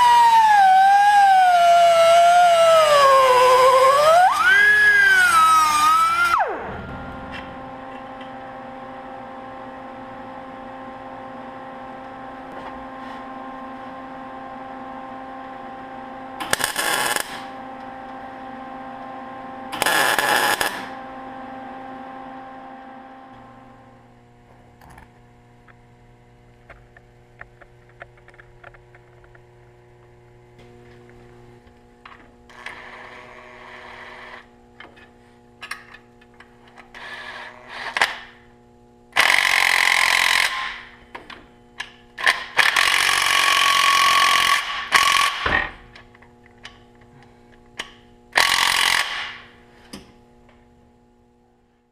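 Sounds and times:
cordless drill running bolts: 39.1 - 40.9, 42.2 - 45.6, 48.3 - 49.5.

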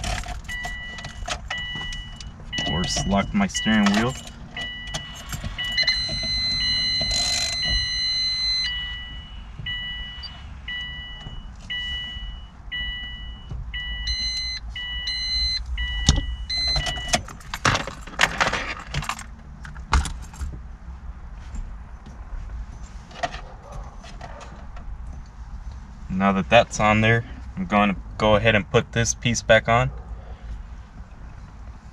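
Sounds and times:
two-note warning chime: 5.6 - 13.4.

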